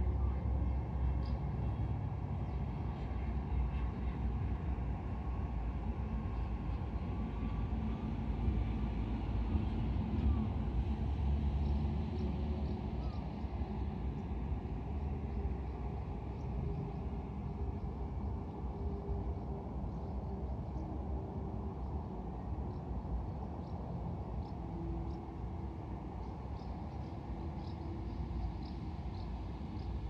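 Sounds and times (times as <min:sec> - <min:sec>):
faint motor whine: 0:00.0 - 0:30.0.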